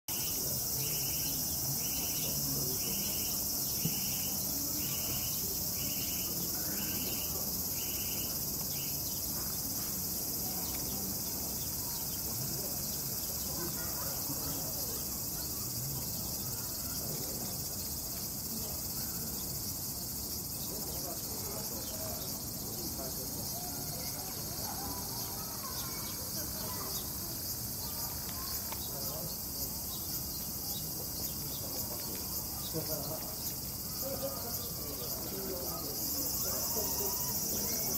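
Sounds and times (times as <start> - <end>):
high-pitched insect chorus: 0.1 - 37.9
pulsing insect call: 0.1 - 37.9.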